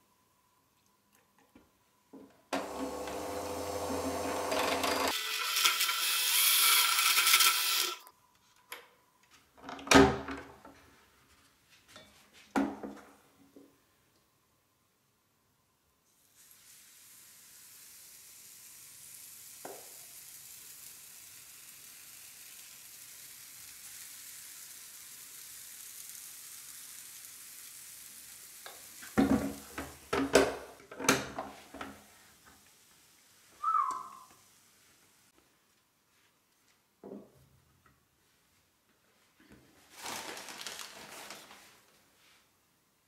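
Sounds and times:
batter sizzling in waffle iron: 0:05.1 - 0:08.1, 0:16.1 - 0:30.0
brief squeak: 0:33.6 - 0:34.3.

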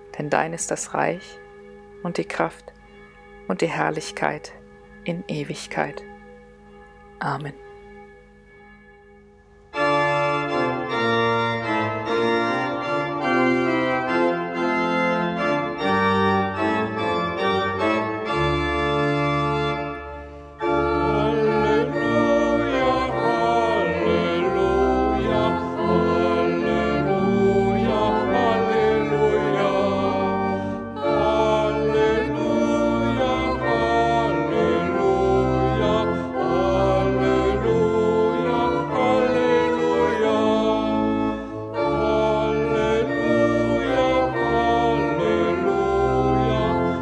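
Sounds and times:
pipe organ playing hymn: 0:00.0 - 0:47.0
voices singing: 0:20.6 - 0:47.0.

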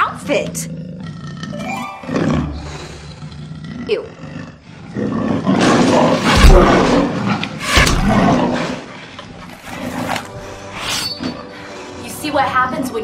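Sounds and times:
monster roaring: 0:00.8 - 0:08.9
heavy thuds: 0:06.2 - 0:08.5.

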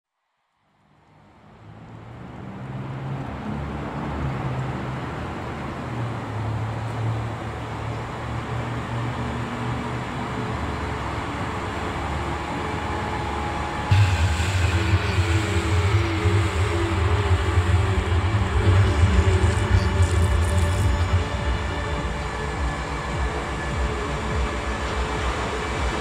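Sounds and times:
rushing wash of noise: 0:00.9 - 0:26.0
loud musical hit: 0:13.9 - 0:26.0
low droning bass: 0:13.9 - 0:26.0.

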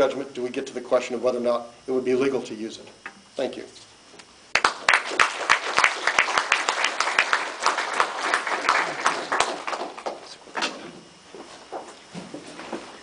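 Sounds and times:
audience applauding: 0:04.5 - 0:10.3.

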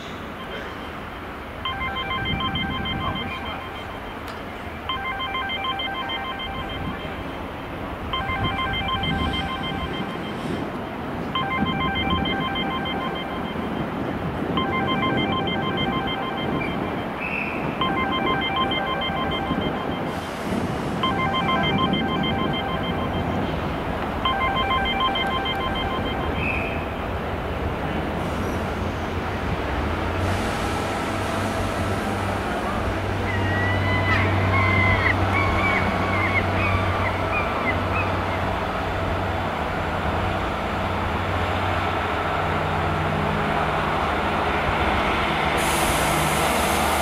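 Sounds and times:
train rumbling: 0:00.0 - 0:47.0
trilling electronic ringing: 0:01.7 - 0:04.2, 0:04.9 - 0:07.5, 0:08.1 - 0:10.5, 0:11.4 - 0:14.0, 0:14.6 - 0:17.2, 0:17.8 - 0:20.2, 0:21.0 - 0:23.5, 0:24.2 - 0:27.0.

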